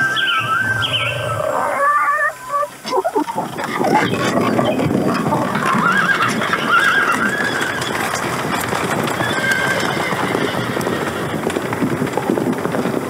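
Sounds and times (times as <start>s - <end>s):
horses whinnying: 0.0s - 13.0s
galloping hooves: 2.6s - 13.0s.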